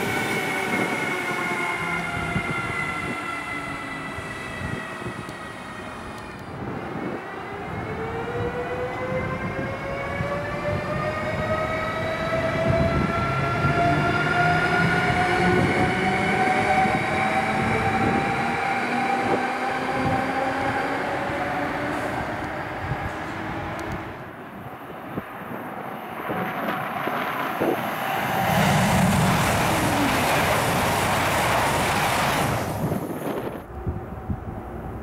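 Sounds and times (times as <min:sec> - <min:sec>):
train wheels rumbling: 0:26.2 - 0:35.0.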